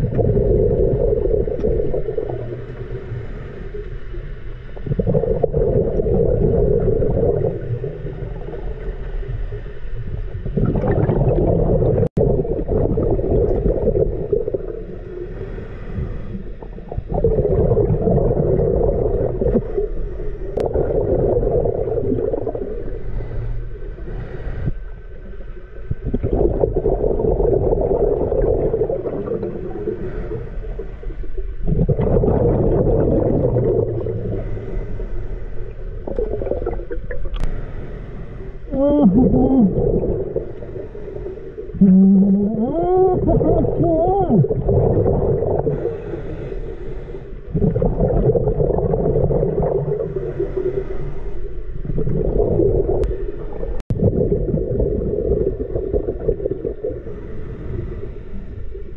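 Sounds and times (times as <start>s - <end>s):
exhaled bubbles gurgling: 0.0s - 37.6s, 38.6s - 58.9s
diver breathing through regulator: 22.8s - 25.0s, 29.3s - 31.2s, 33.3s - 36.0s, 37.4s - 38.7s, 39.8s - 41.9s, 45.4s - 48.2s, 49.9s - 51.8s, 57.0s - 58.9s.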